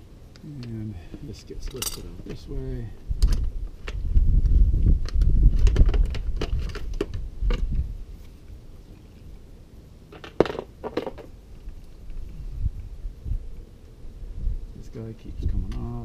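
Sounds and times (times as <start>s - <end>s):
metal hardware clinking: 1.6s - 2.4s.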